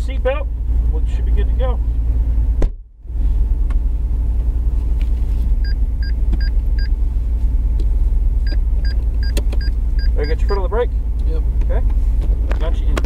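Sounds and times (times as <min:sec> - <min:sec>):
car engine idling: 0:00.0 - 0:13.0
car warning chime beeping: 0:05.6 - 0:07.0, 0:08.4 - 0:10.7.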